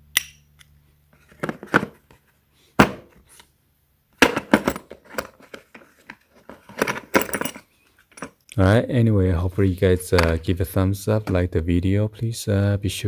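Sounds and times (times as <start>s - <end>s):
metal tools knocking and clinking: 4.2s - 5.5s, 6.7s - 8.4s.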